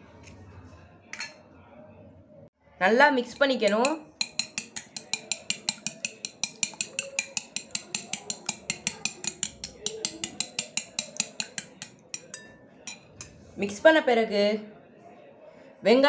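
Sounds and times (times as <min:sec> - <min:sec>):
metal spoon beating eggs in bowl: 0:03.2 - 0:13.8.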